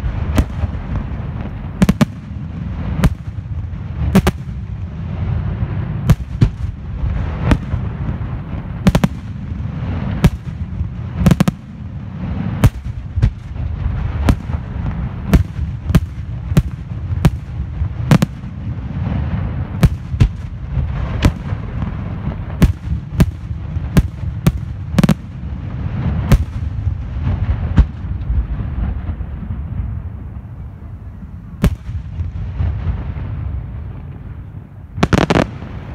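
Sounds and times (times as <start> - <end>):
continuous low rumble: 0.0 - 35.9
firework shells bursting: 35.0 - 35.6.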